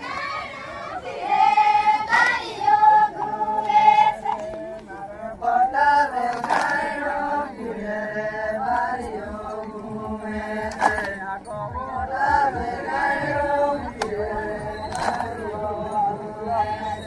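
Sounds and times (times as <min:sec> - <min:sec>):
voices singing folk song: 0:00.0 - 0:17.0
steady drum beat: 0:11.6 - 0:13.9.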